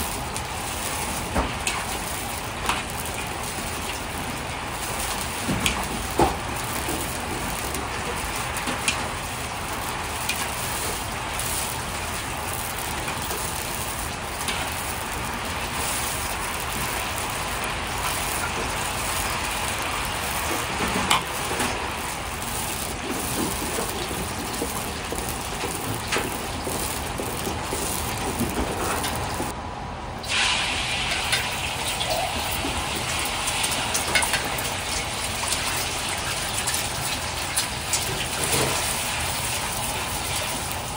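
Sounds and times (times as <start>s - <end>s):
egg poured into hot oil: 0.0s - 29.5s, 30.2s - 40.9s
hot oil sizzling in a wok: 0.0s - 29.6s, 30.2s - 40.9s.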